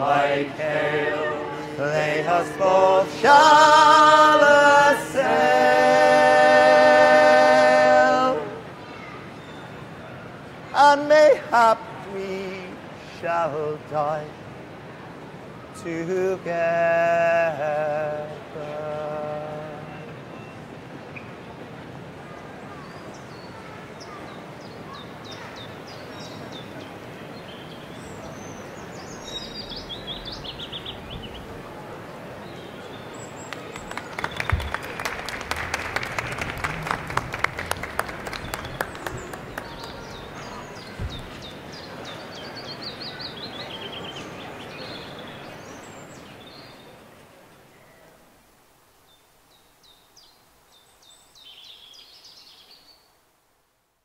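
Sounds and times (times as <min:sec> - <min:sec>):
busy station background noise: 0:00.0 - 0:49.0
birds chirping and trilling: 0:27.4 - 0:31.6
crowd applause: 0:33.3 - 0:41.8.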